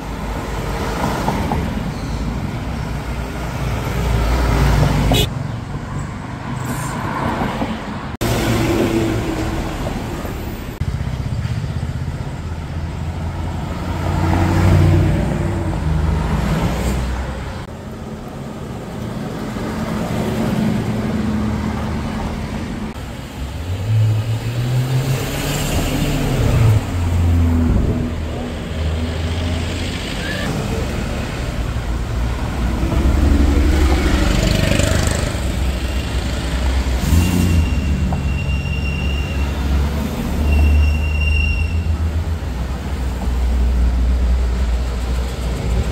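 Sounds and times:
cars driving past: 0:00.0 - 0:45.9.

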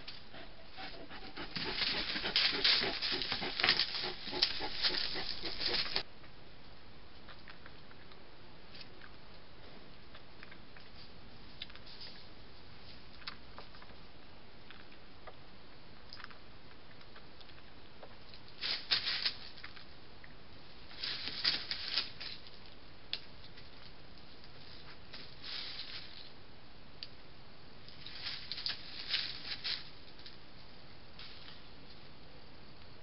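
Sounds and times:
animals rustling dry leaves: 0:00.8 - 0:06.1, 0:18.6 - 0:19.8, 0:20.8 - 0:22.7, 0:24.4 - 0:26.3, 0:28.0 - 0:30.2.

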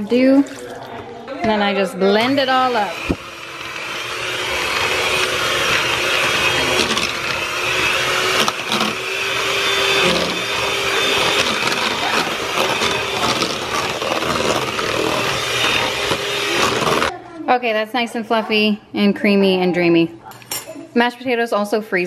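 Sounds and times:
electric mixer running: 0:01.4 - 0:17.1.

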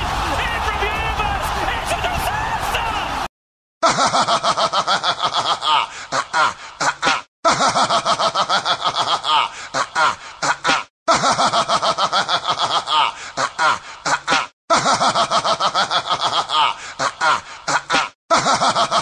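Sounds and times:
person snickering laugh: 0:03.8 - 0:19.0.

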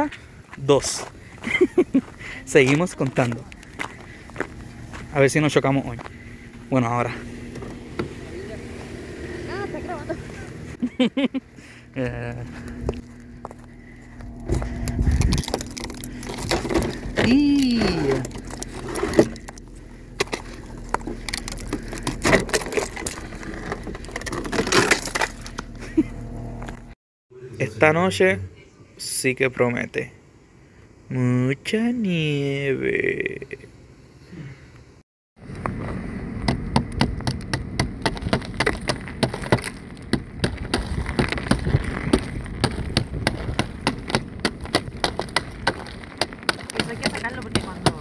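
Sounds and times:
footsteps crunching snow: 0:00.5 - 0:09.4, 0:12.2 - 0:25.8, 0:38.2 - 0:48.0
faint low hum: 0:01.2 - 0:26.8.

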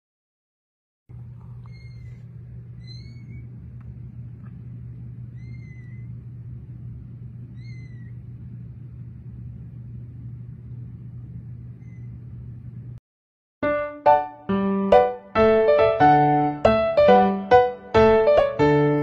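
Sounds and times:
steady low hum: 0:01.1 - 0:13.0
kittens mewing: 0:01.4 - 0:03.6, 0:05.3 - 0:06.2, 0:07.5 - 0:08.2.

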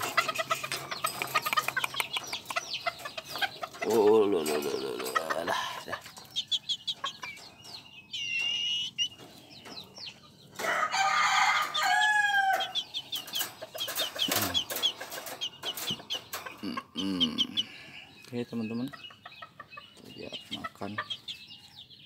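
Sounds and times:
rooster crowing: 0:10.6 - 0:12.8.

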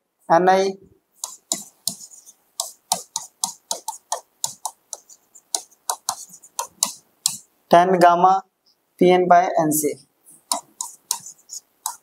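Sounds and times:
stylus tapping on glass: 0:01.2 - 0:07.5, 0:10.5 - 0:12.0.

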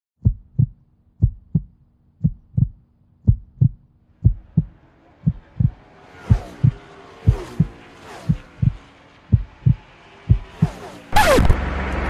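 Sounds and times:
heartbeat thumps: 0:00.2 - 0:11.6.

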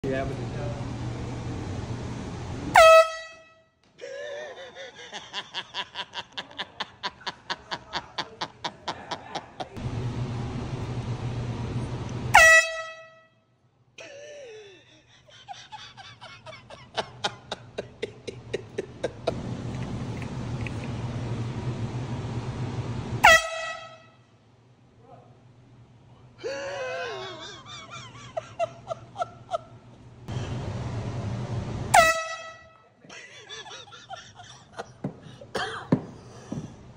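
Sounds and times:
steady background hum: 0:00.0 - 0:36.9
air horn blasts: 0:02.7 - 0:03.8, 0:12.3 - 0:13.5, 0:23.2 - 0:24.3, 0:31.9 - 0:33.0.

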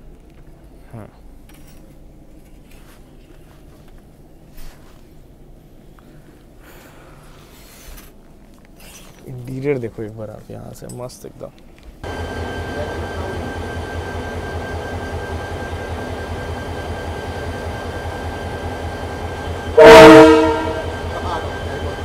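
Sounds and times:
diesel train engine rumble: 0:12.0 - 0:22.0
locomotive horn blast: 0:19.1 - 0:22.0.

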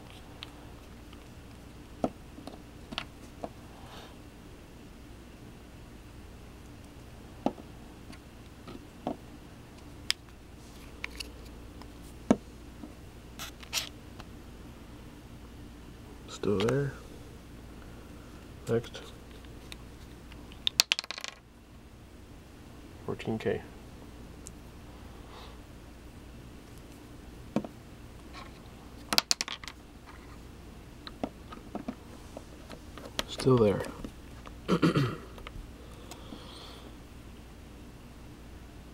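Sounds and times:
faint room hum: 0:00.0 - 0:38.9.

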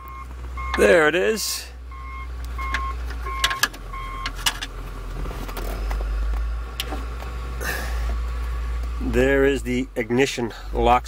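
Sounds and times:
short electronic beeps: 0:00.0 - 0:00.9, 0:01.9 - 0:04.4.

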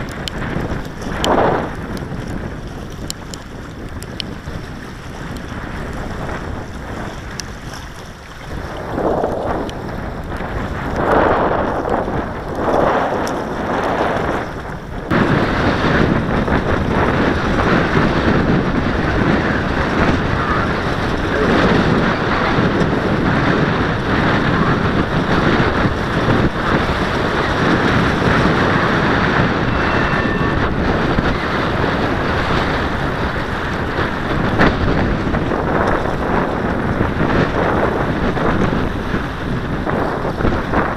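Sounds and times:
strong gusty wind on microphone: 0:00.0 - 0:40.9.

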